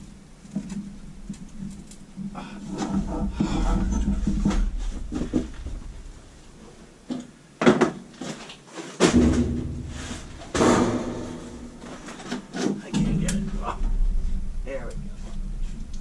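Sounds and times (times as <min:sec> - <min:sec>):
low rumble: 0:00.0 - 0:07.1, 0:09.2 - 0:12.2, 0:12.8 - 0:16.0
sudden clunks: 0:02.2 - 0:06.6, 0:09.0 - 0:16.0.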